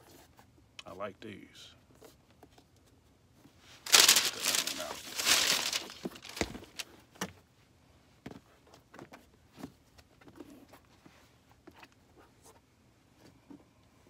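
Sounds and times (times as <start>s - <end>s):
paper crinkling and rustling: 3.8s - 7.0s.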